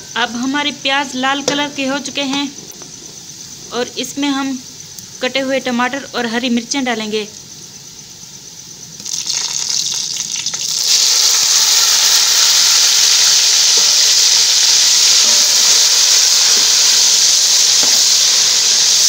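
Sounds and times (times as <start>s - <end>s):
vegetables sizzling in hot oil: 8.9s - 19.0s.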